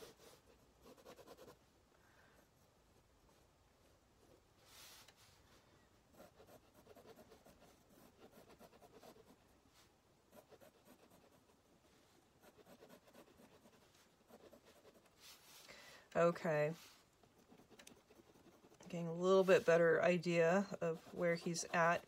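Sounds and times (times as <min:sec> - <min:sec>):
pen scratching on paper: 0:00.0 - 0:01.6, 0:06.1 - 0:09.5, 0:10.3 - 0:11.6, 0:12.4 - 0:15.2, 0:16.7 - 0:20.0, 0:20.6 - 0:22.0.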